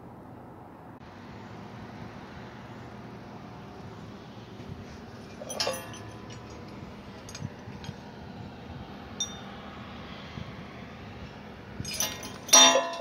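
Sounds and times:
metal tools clinking: 0:05.2 - 0:08.0, 0:09.2 - 0:09.5, 0:11.8 - 0:13.0.

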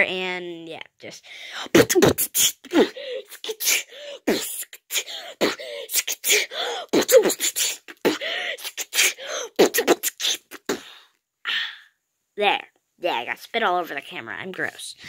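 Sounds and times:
person beatboxing: 0:07.0 - 0:10.8.

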